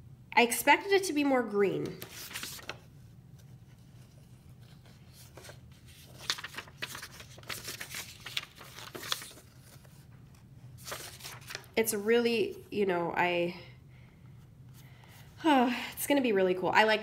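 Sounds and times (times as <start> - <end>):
paper leaflet rustling: 1.8 - 11.8.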